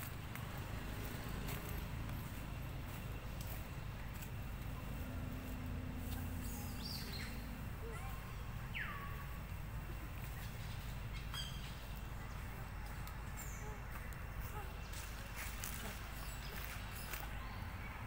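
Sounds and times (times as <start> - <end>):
bird calls: 6.0 - 9.5, 10.2 - 18.0.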